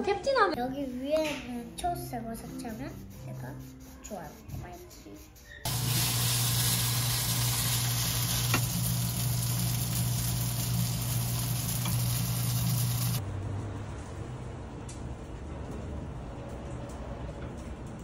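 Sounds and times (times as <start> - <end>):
noodles sizzling in a frying pan: 5.7 - 13.2.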